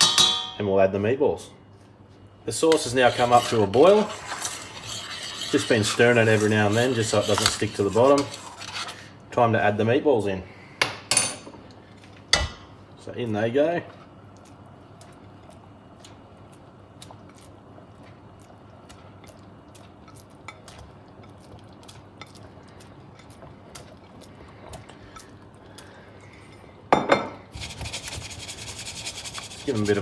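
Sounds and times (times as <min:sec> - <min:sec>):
saucepan scraping on glass cooktop: 0:02.7 - 0:09.1, 0:27.5 - 0:30.0
sauce bubbling and popping: 0:14.1 - 0:26.9.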